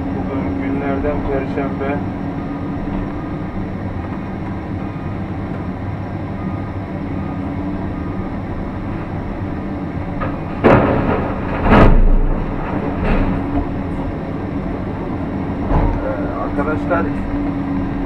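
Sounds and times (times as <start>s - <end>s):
excavator diesel engine and hydraulics: 0.0s - 18.0s
dirt and rock landing in steel truck bed: 10.2s - 13.7s.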